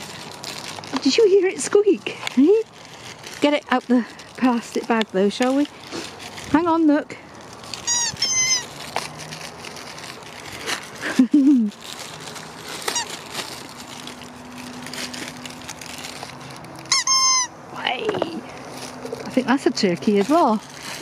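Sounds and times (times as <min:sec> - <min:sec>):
plastic wrapping crinkling: 0:00.0 - 0:17.5, 0:18.2 - 0:21.0
rubber dog toy squeaking: 0:07.7 - 0:08.9, 0:12.8 - 0:13.2, 0:16.8 - 0:17.6.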